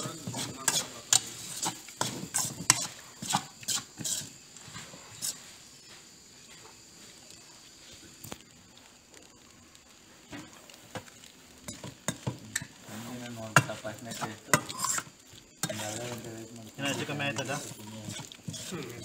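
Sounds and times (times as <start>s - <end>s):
utensil scraping steel pan: 0.0s - 5.4s, 11.7s - 19.0s.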